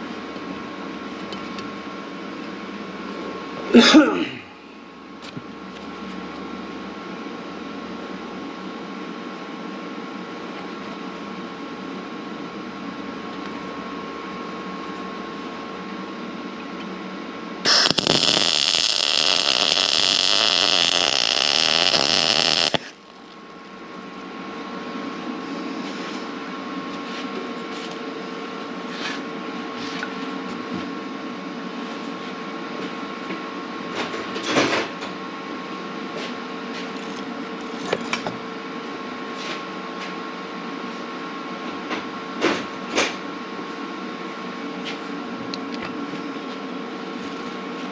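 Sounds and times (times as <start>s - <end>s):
steady hum: 12.4s - 26.9s
welder arc crackling: 17.7s - 23.8s.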